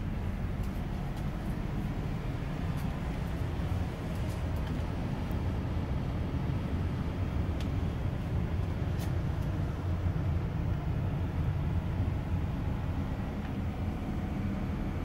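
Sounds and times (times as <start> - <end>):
bus engine low drone: 0.0 - 15.0.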